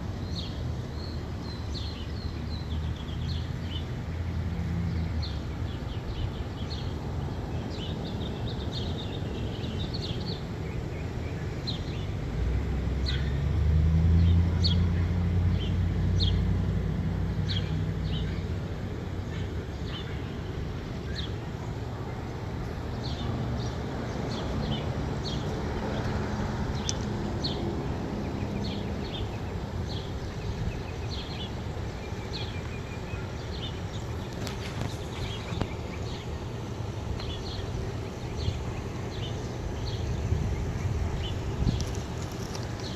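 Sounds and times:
low rumble of street traffic: 0:00.0 - 0:42.9
vehicle passing: 0:12.0 - 0:42.9
small birds chirping: 0:17.4 - 0:42.9.

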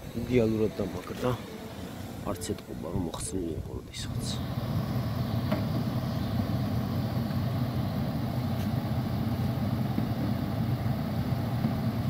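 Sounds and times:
pickup engine idling: 0:04.0 - 0:12.0.

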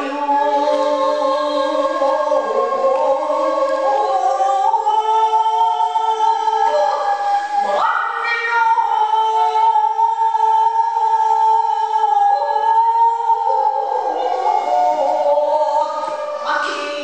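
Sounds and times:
woman chanting poetry: 0:12.3 - 0:17.0.

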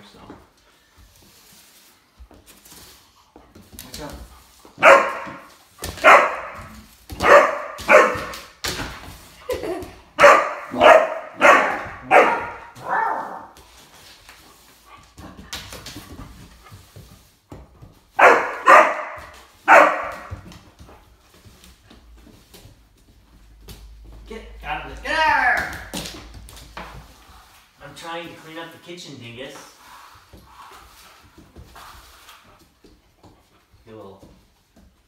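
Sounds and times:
dog barking: 0:04.8 - 0:08.5, 0:10.2 - 0:13.5, 0:18.2 - 0:20.4.

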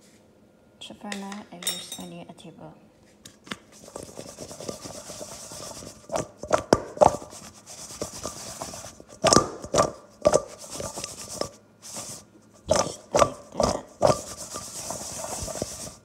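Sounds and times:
vegetable sticks rustling in a bowl: 0:03.1 - 0:12.9, 0:13.5 - 0:16.0.

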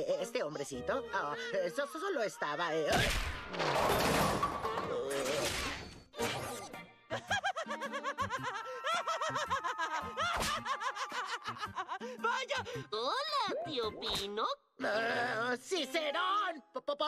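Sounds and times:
music: 0:00.0 - 0:02.9, 0:06.0 - 0:17.0
loud cartoon crash: 0:02.9 - 0:06.4
cartoon pig giggling: 0:06.5 - 0:11.9.

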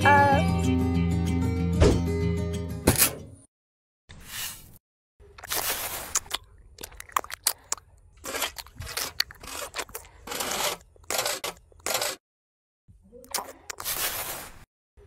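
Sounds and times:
trowel scraping mortar: 0:05.4 - 0:06.3, 0:08.2 - 0:12.2, 0:13.7 - 0:14.7.

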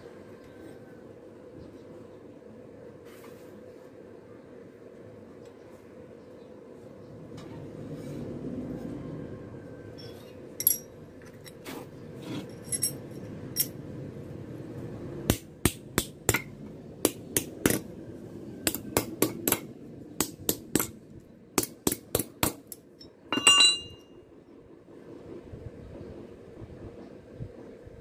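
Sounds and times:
light metallic clinks: 0:12.5 - 0:13.8, 0:23.0 - 0:24.1
hammer striking metal: 0:15.3 - 0:17.9, 0:18.6 - 0:21.0, 0:21.6 - 0:24.0
metal part clattering down: 0:23.0 - 0:24.0.

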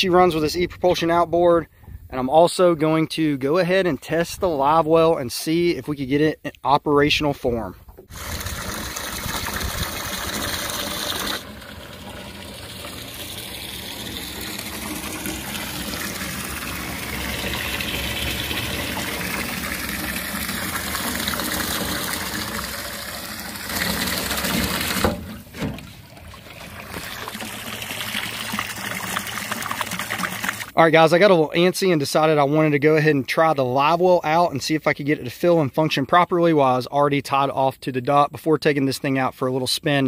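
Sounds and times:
water jet splashing into lake: 0:08.1 - 0:30.8
water splashing into metal tank: 0:08.1 - 0:30.8.

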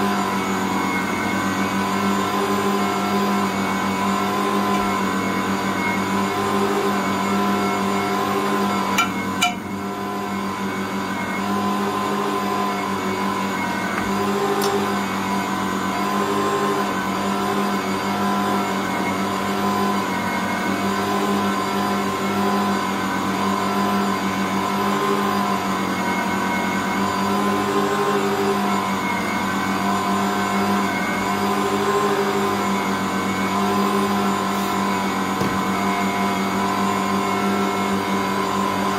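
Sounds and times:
stand mixer kneading dough: 0:00.0 - 0:38.9.

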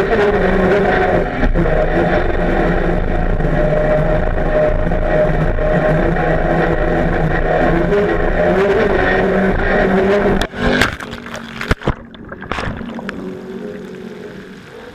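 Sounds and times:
boat engine racing: 0:00.0 - 0:14.9
muffled underwater sound: 0:00.0 - 0:14.9
sharp burst of splashing: 0:10.7 - 0:14.5.

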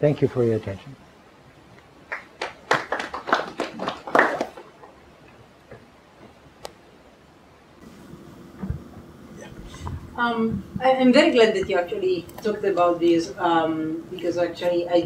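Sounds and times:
audience applause: 0:02.1 - 0:05.0.

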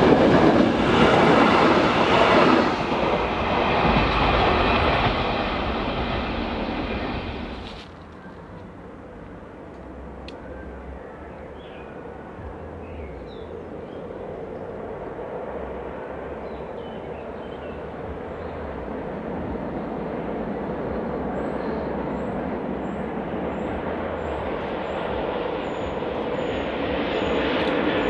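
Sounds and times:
train wheels rumbling: 0:00.0 - 0:10.9.

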